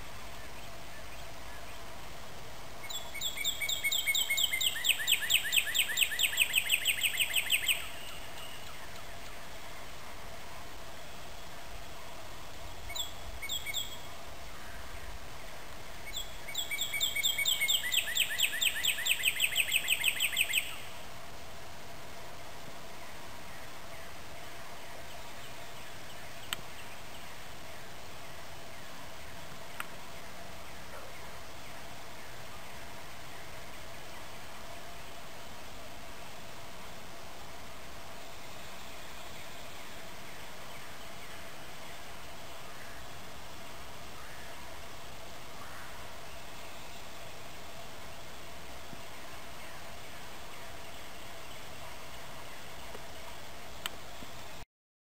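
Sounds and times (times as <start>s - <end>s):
bird singing repeated notes: 2.8s - 9.4s, 16.0s - 21.0s.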